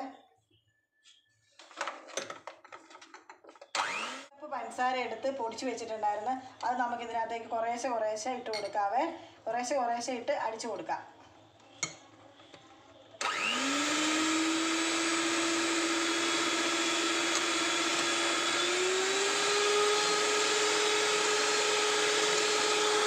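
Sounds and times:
electric hand mixer whining: 3.8s - 4.3s, 13.2s - 23.0s.

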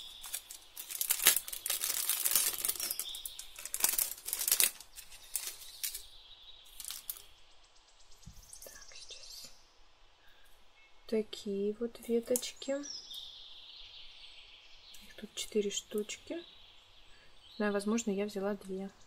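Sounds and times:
plastic packaging crinkling: 0.0s - 6.1s, 6.7s - 7.3s.

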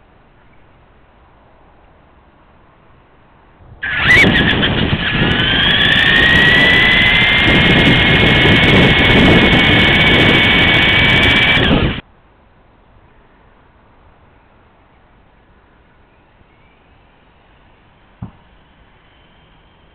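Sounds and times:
rc car motor whining: 3.8s - 12.0s, 16.5s - 19.9s
wheels rumbling on rough road: 3.8s - 12.0s.

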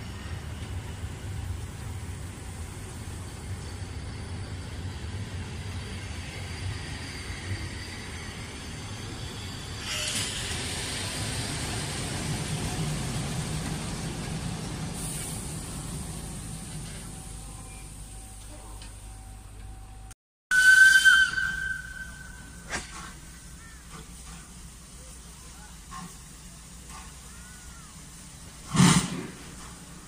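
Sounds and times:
train wheels rumbling on rails: 0.0s - 20.1s, 21.0s - 30.0s.

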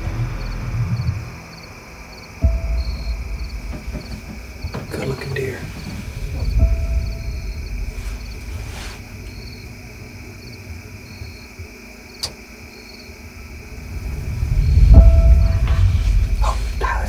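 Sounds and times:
crickets chirping: 0.0s - 17.0s
high insect drone: 0.0s - 17.0s
low rumble: 0.0s - 17.0s.

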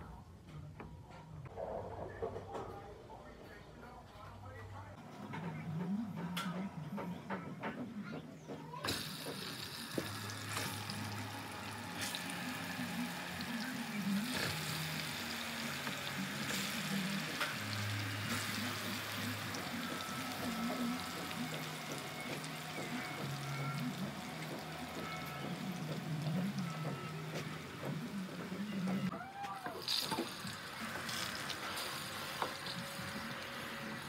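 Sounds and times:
frying in hot oil sizzling: 8.8s - 28.7s, 29.8s - 34.0s
oil spattering and crackling: 29.8s - 33.4s.

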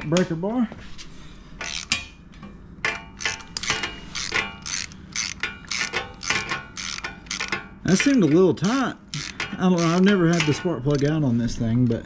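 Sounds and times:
socket ratchet clicking: 1.6s - 2.0s, 2.8s - 11.1s.

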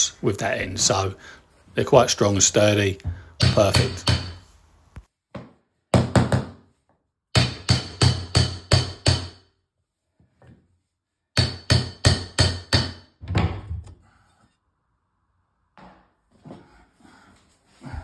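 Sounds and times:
hammer striking metal bar: 3.4s - 4.4s, 7.4s - 9.4s, 11.4s - 13.1s.

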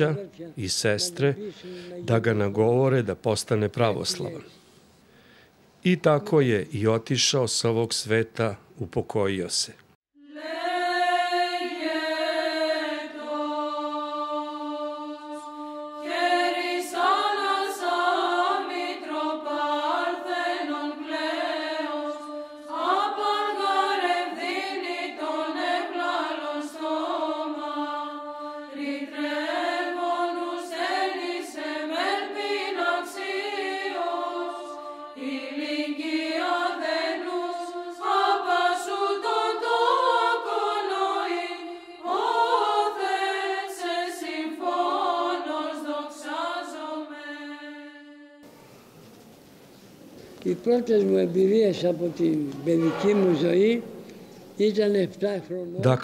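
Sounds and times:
voices chanting slow melody: 10.2s - 48.9s.

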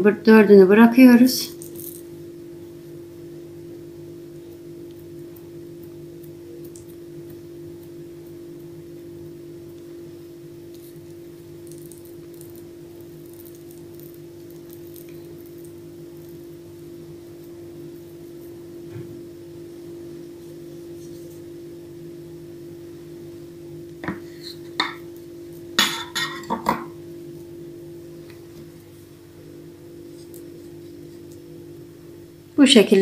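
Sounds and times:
electrical hum: 0.0s - 33.0s
hands kneading dough: 4.2s - 21.8s.

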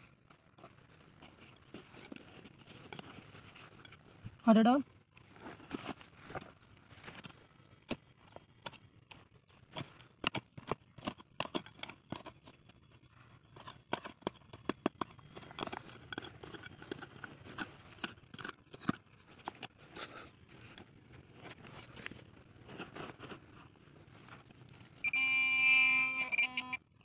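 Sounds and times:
sharp clicks and knocks: 7.1s - 12.8s, 13.5s - 22.2s.

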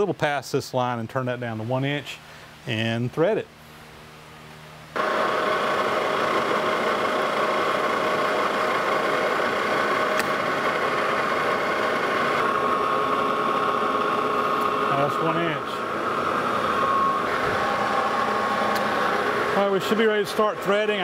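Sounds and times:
motor and gearing hum: 3.6s - 21.0s
metal lathe running: 5.0s - 21.0s.

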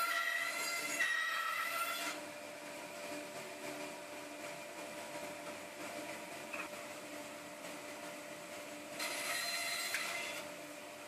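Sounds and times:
bandsaw cutting wood: 9.0s - 10.4s.

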